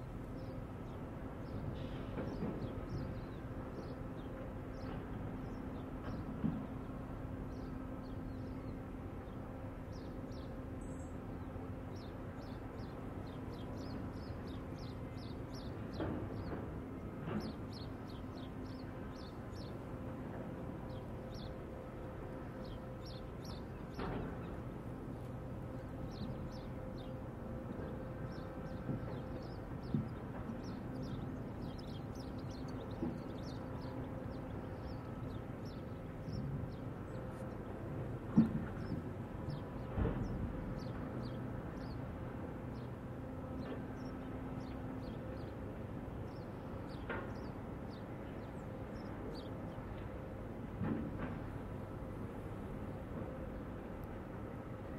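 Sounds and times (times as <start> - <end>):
low mechanical drone: 0.0 - 54.9
small birds chirping: 26.0 - 37.8, 38.7 - 42.1, 46.2 - 50.1.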